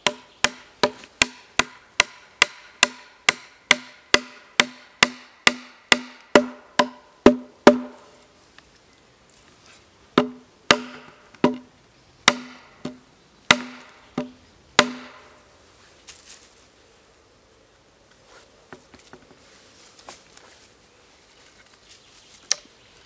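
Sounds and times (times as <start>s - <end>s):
hatchet pounding wooden stake: 0.0s - 8.0s, 10.2s - 11.6s, 12.2s - 15.3s.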